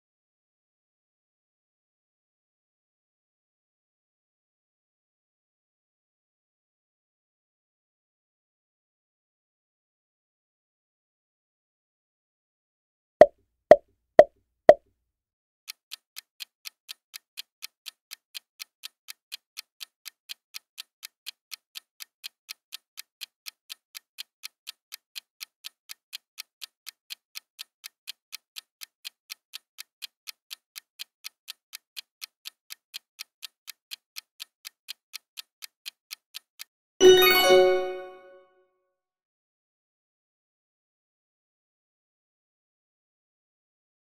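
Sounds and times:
rapid clock ticking: 0:15.7 - 0:36.7
bell-like chime: 0:37.0 - 0:38.4.

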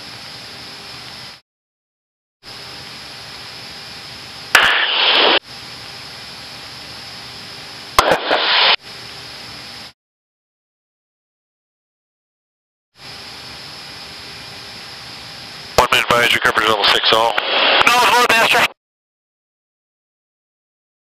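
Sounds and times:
radio hiss: 0:04.5 - 0:05.4, 0:08.0 - 0:08.8, 0:15.7 - 0:18.8.

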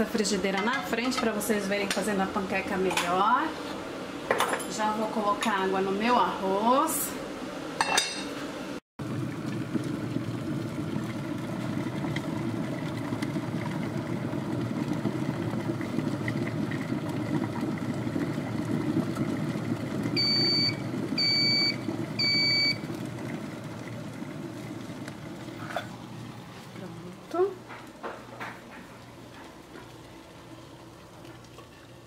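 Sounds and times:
kettle water boiling: 0:00.0 - 0:07.8, 0:09.0 - 0:32.0
kettle short beeps: 0:20.2 - 0:22.8.

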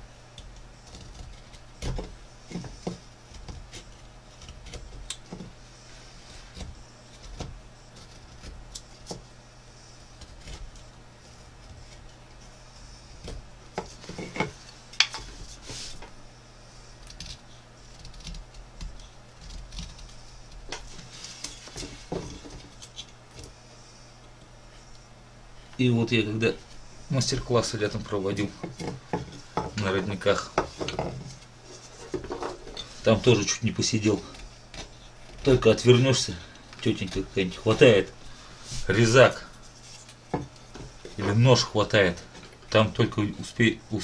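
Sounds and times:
low steady hum: 0:00.0 - 0:44.0
knife carving wood: 0:00.3 - 0:05.6, 0:06.2 - 0:09.3, 0:10.0 - 0:12.4, 0:16.9 - 0:23.5, 0:34.0 - 0:38.2.

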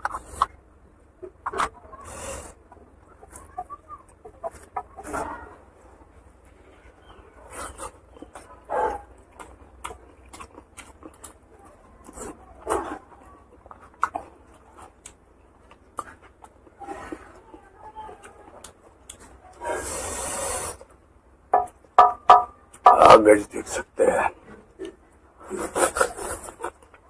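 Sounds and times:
wet smacking and chewing: 0:07.0 - 0:17.3.

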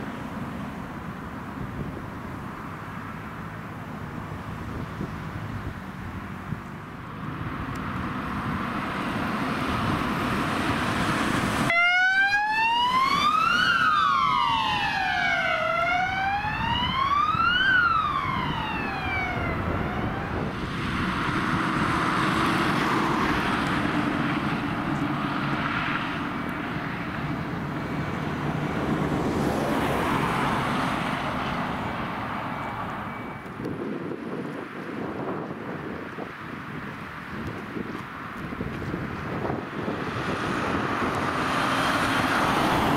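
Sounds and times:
van engine noise: 0:00.0 - 0:11.8, 0:12.8 - 0:42.9
passing road traffic: 0:00.0 - 0:42.9
ambulance siren wailing: 0:11.6 - 0:20.8.

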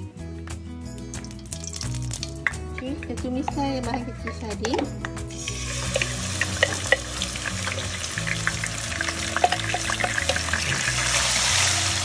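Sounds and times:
wooden spoon tapping glass jar: 0:01.2 - 0:05.2
paste sizzling in hot oil: 0:05.2 - 0:12.0.

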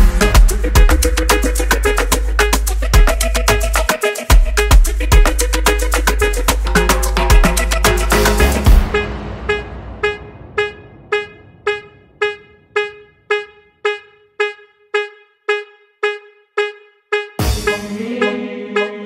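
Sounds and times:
background music with beat: 0:00.0 - 0:19.0
repeating horn-like note: 0:00.0 - 0:19.0.

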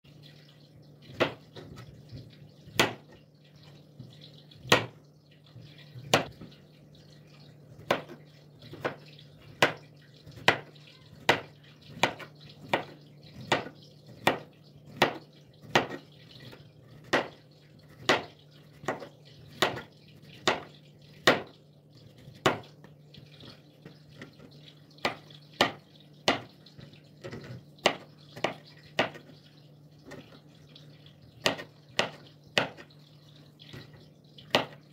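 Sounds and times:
knife chopping on cutting board: 0:02.7 - 0:03.0, 0:04.6 - 0:05.0, 0:10.4 - 0:16.0, 0:27.2 - 0:29.3, 0:31.4 - 0:32.8.

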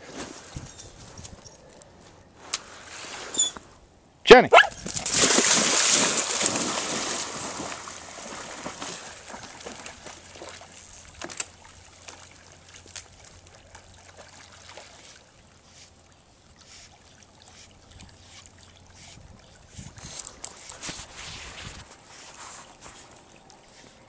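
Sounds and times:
dog splashing into water: 0:04.7 - 0:10.9.

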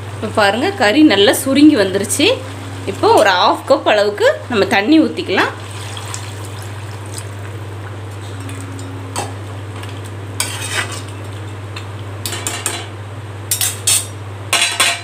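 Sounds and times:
steady sizzle: 0:00.0 - 0:14.0
metal spatula scraping pan: 0:10.4 - 0:11.1.

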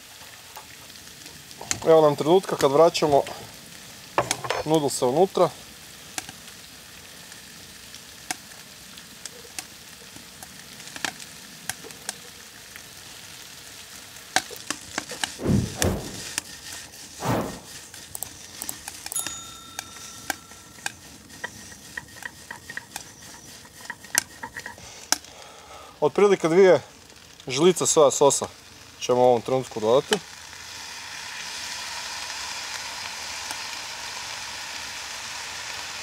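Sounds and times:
noodles sizzling in a wok: 0:00.0 - 0:15.4, 0:16.1 - 0:36.0
dull thumps: 0:15.4 - 0:16.4
utensil clicking against wok: 0:20.2 - 0:25.3.

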